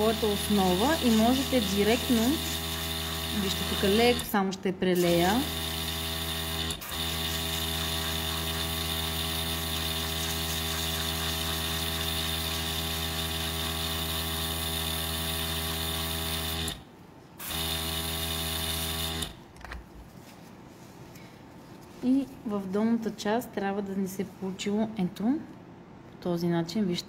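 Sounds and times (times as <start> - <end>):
airbrush compressor humming: 0.0 - 4.4, 5.0 - 19.5.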